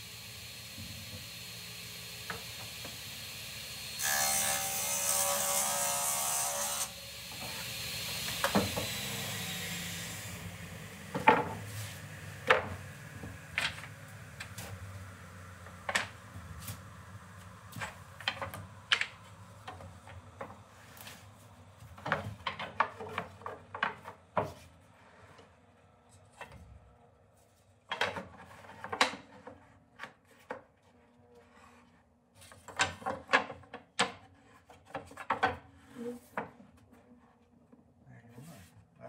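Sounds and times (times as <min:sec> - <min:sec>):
table saw cutting plywood: 0:00.0 - 0:21.2.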